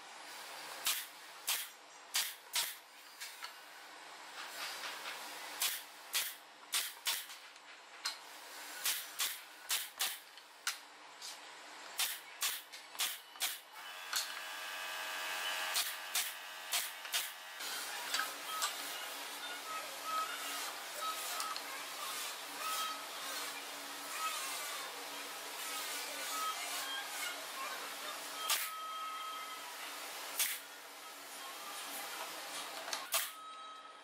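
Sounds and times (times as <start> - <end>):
nail gun firing: 0.8 - 2.8, 5.6 - 7.3, 8.8 - 10.2, 12.0 - 13.6, 15.7 - 17.4, 30.4 - 30.6, 33.1 - 33.4.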